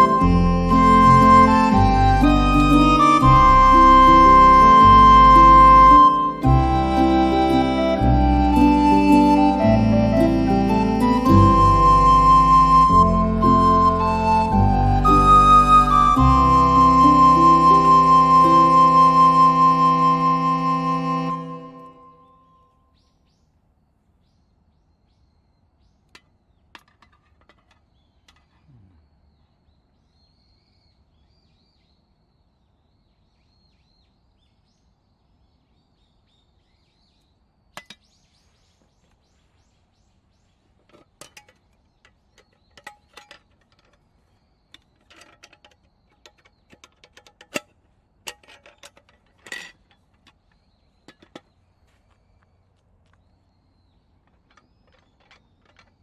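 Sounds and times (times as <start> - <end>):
faint bird chirps: 28.0 - 40.8
wire handle clinking on metal tin: 40.9 - 44.1, 44.7 - 50.4.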